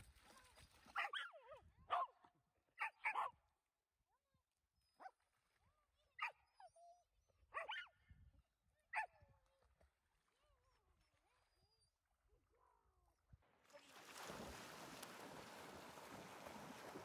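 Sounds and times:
dog yipping and barking: 1.0 - 2.1, 2.8 - 3.3, 6.2 - 7.9.

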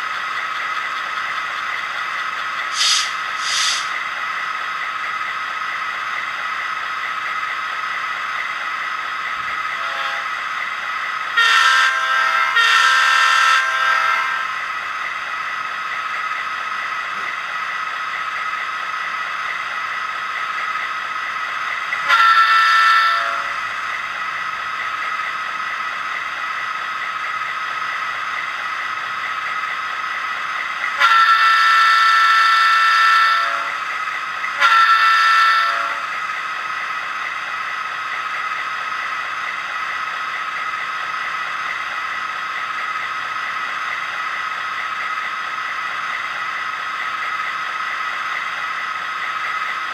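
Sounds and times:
diesel locomotive idling: 0.0 - 49.9
locomotive horn blasts: 9.8 - 10.3, 11.4 - 14.4, 22.1 - 23.6, 31.0 - 33.8, 34.6 - 36.0.

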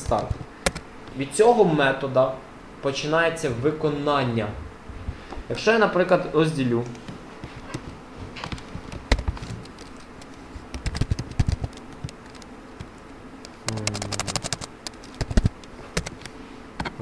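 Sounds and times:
computer keyboard typing: 10.8 - 12.4, 13.6 - 16.2.

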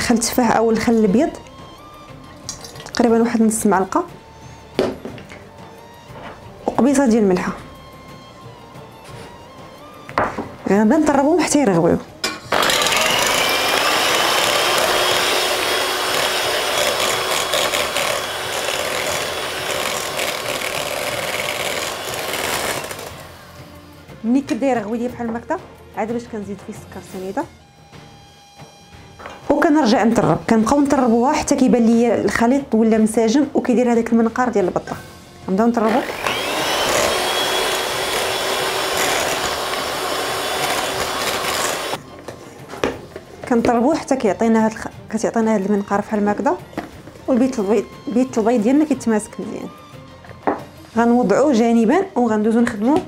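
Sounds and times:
electric hand mixer beating: 12.5 - 23.4, 35.9 - 42.0.

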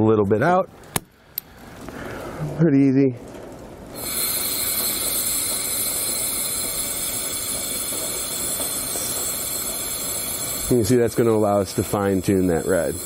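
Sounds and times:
compressed air hissing from valve: 3.9 - 13.0.

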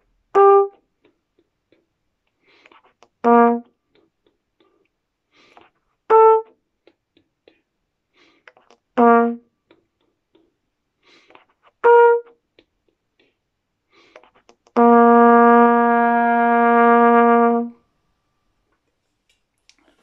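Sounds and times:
trumpet notes: 0.3 - 0.9, 3.2 - 3.8, 6.1 - 6.6, 9.0 - 9.6, 11.8 - 12.4, 14.7 - 17.8.

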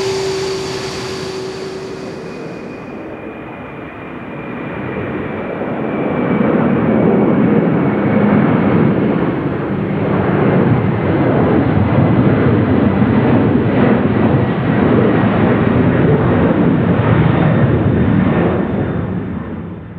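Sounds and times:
jet engines roaring: 0.0 - 2.9
faint high engine whine: 0.0 - 3.0.

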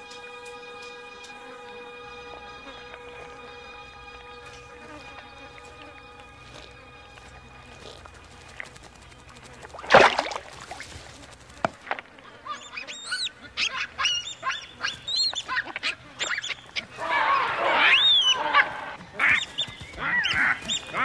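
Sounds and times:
baboons screaming: 12.2 - 21.0.

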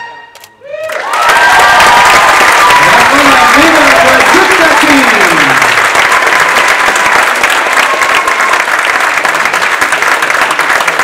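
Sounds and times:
audience applauding: 0.7 - 11.0.

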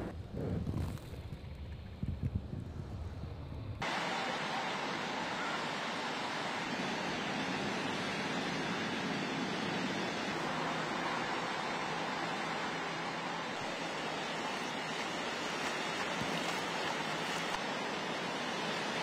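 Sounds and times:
wind buffeting microphone: 0.0 - 3.8.

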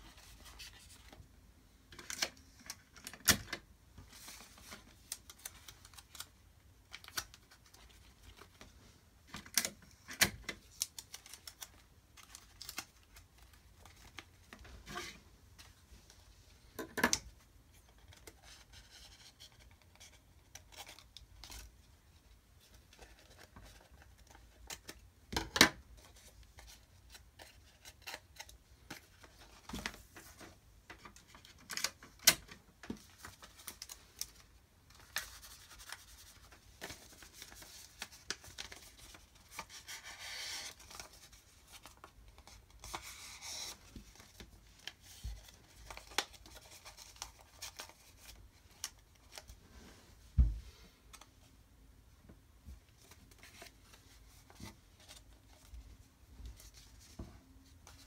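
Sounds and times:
paper rustling: 31.3 - 49.6.

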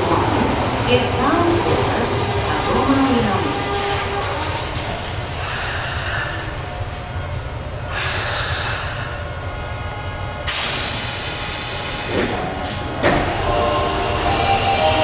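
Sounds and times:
compressed air hissing: 7.9 - 9.3, 10.5 - 15.0.

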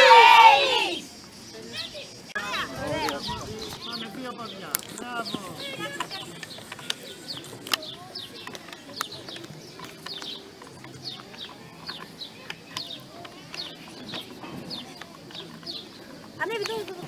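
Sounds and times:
birds chirping: 0.0 - 17.0
murmur of distant voices: 0.0 - 17.0
sharp clicks: 3.0 - 17.0.

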